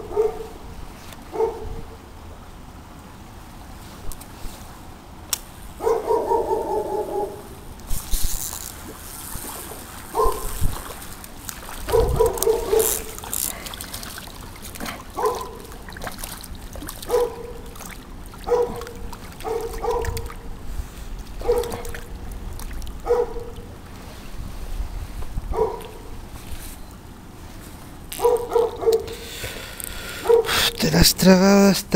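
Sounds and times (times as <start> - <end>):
dog barking: 0.0 - 0.6, 1.3 - 1.8, 5.8 - 7.5, 10.2 - 10.5, 11.9 - 13.1, 15.2 - 15.6, 17.1 - 17.6, 18.4 - 20.2, 21.4 - 21.9, 23.0 - 23.6, 25.5 - 26.0, 28.2 - 29.2, 30.2 - 30.7
stream trickling: 3.0 - 30.4.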